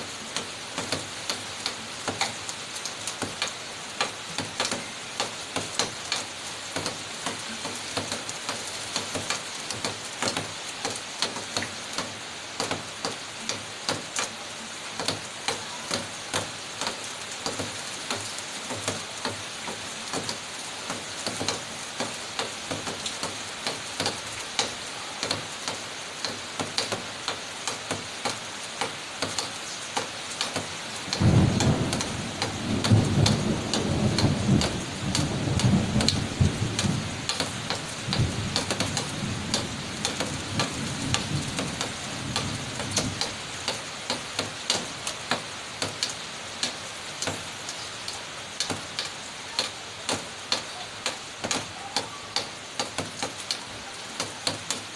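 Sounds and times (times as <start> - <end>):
heavy rain hissing: 0.0 - 54.9
raindrops ticking: 0.0 - 54.9
thunder rumbling: 31.2 - 43.2.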